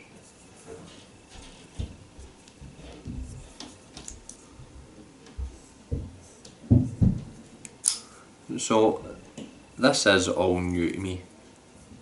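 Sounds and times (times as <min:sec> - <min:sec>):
low knocks: 0:05.4 - 0:07.4
sharp click: 0:07.6 - 0:08.1.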